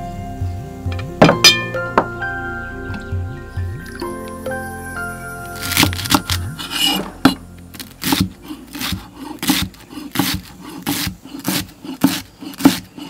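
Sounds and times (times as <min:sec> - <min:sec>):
knife chopping on wooden block: 0:08.0 - 0:13.0.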